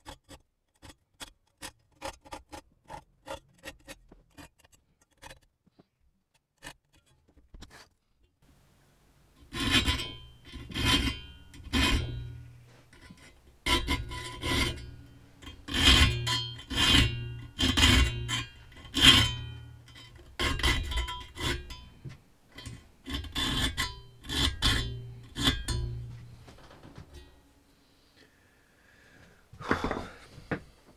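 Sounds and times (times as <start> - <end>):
file rasping on saw teeth: 0.0 - 5.5, 9.4 - 21.8, 22.6 - 25.8.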